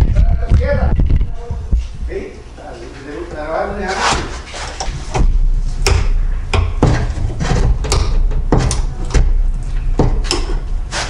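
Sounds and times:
low rumble: 4.9s - 10.9s.

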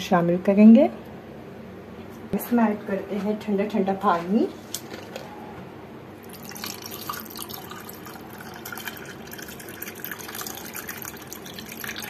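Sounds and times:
water pouring over ice: 6.2s - 12.0s.

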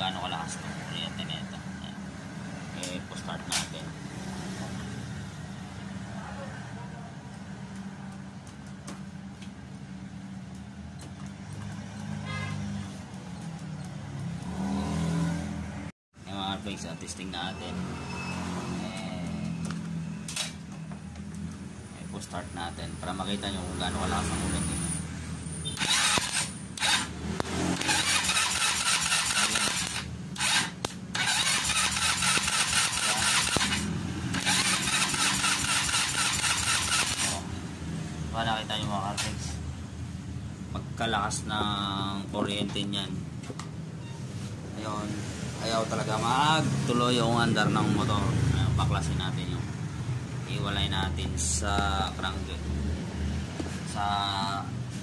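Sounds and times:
motorcycle electric starter cranking: 25.6s - 37.5s.

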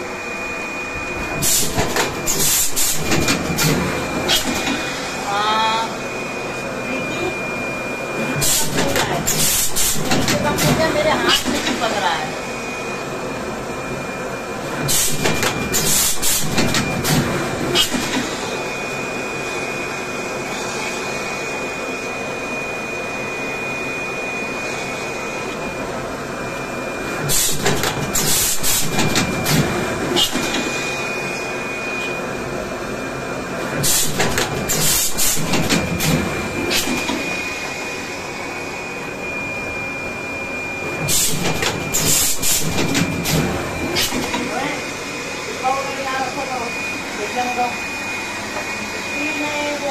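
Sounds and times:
wrapping machine humming and whining: 0.0s - 49.9s
machine clattering and clunking: 1.4s - 4.8s, 33.8s - 37.2s, 41.0s - 44.4s.

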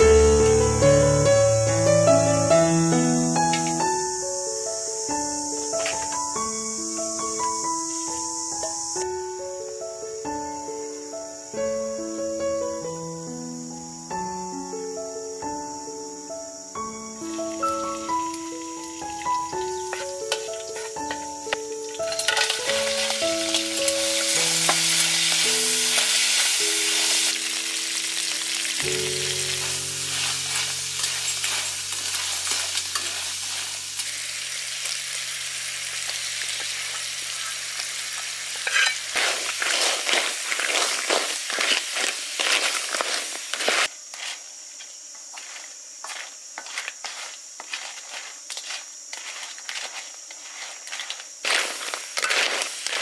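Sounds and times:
soft melody: 0.0s - 34.0s
crab sizzling in hot oil: 3.0s - 9.1s, 17.2s - 53.0s
spatula scraping shells and wok: 3.4s - 4.0s, 17.3s - 53.0s.

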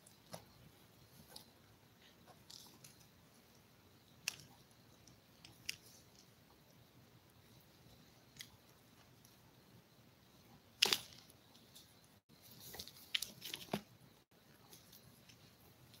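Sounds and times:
sharp crackle: 10.8s - 16.0s.

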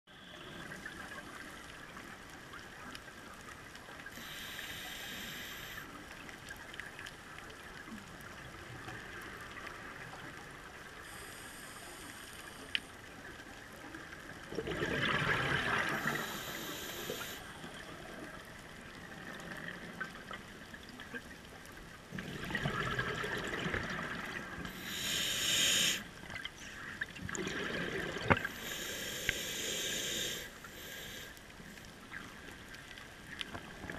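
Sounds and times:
underwater background noise: 0.1s - 33.9s
regulator inhalation hiss: 4.2s - 5.9s, 16.0s - 17.5s, 24.7s - 26.1s, 28.5s - 31.4s.

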